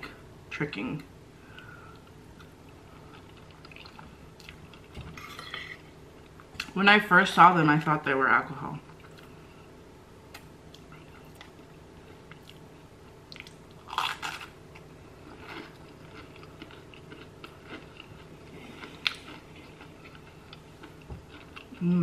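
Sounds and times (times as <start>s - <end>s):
chewing with wet clicks: 2.4s - 4.9s, 13.3s - 13.6s, 15.5s - 21.8s
crunchy bite: 13.4s - 14.6s.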